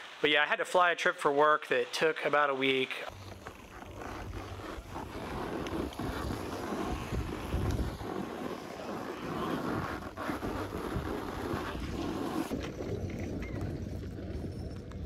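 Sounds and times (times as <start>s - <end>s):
wind buffeting microphone: 4.8s - 8.4s.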